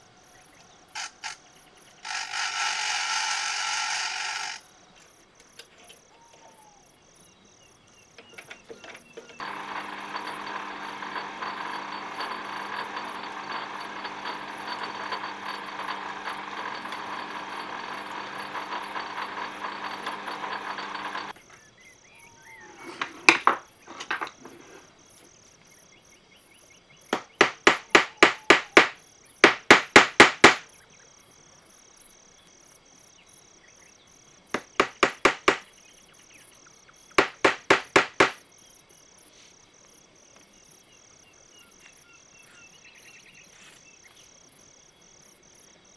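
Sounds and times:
metal lathe drilling: 2.1 - 4.6, 9.4 - 21.3, 27.2 - 30.6, 34.6 - 35.6, 37.2 - 38.4
hammer tapping metal part: 27.2 - 30.6, 34.6 - 35.6, 37.2 - 38.4.

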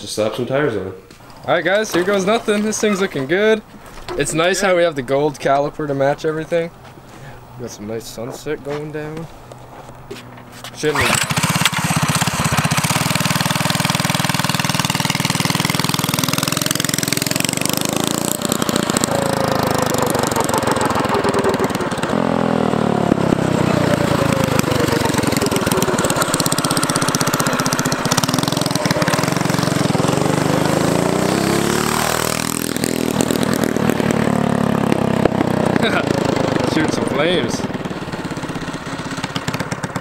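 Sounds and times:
go-kart engine revving: 10.2 - 40.0.

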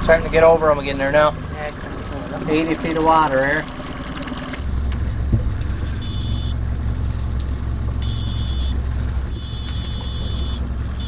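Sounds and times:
boat motor idling: 0.0 - 11.0
high electronic beeping: 4.8 - 6.6, 8.0 - 11.0.

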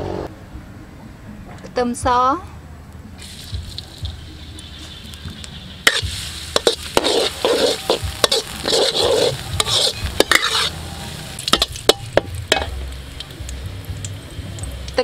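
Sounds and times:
food sizzling in oil: 3.2 - 15.0
metal spatula scraping a wok: 5.8 - 12.7.

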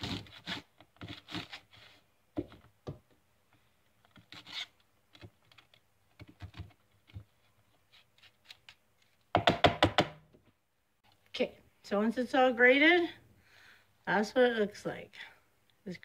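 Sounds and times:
cauliflower scraping on hand grater: 0.0 - 2.0.

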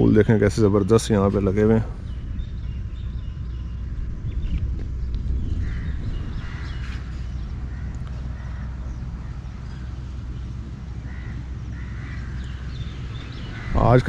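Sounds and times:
wind rumble on microphone: 0.0 - 14.0
crows cawing: 5.6 - 9.8, 10.9 - 14.0.

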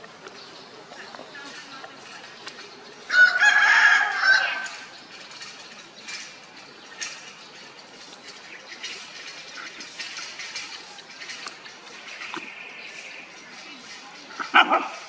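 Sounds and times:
rooster crowing: 3.1 - 4.8.

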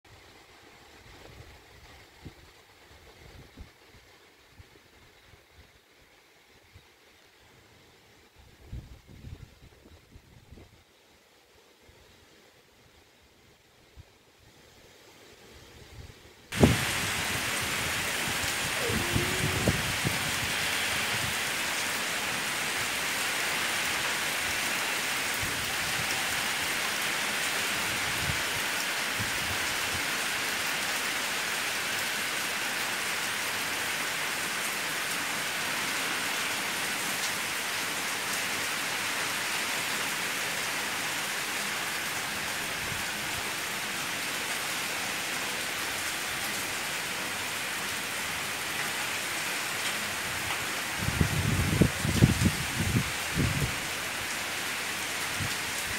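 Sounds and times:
heavy rain pouring: 16.5 - 55.9.

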